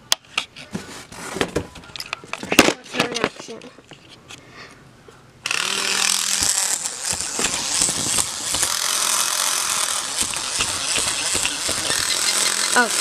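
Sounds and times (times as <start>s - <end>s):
toy gears whirring and clicking: 5.4s - 13.0s.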